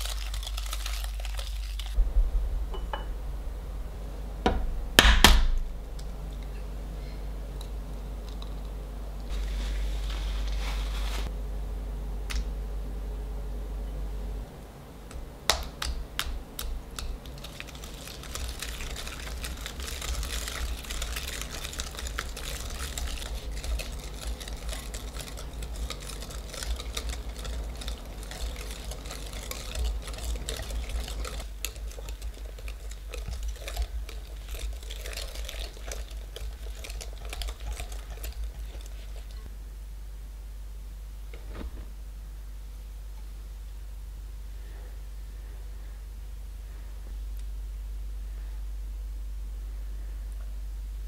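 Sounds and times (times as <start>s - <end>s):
whisk clicking and scraping bowl: 0.0s - 2.0s, 15.1s - 39.5s
whisk clinking against glass bowl: 17.9s - 39.4s.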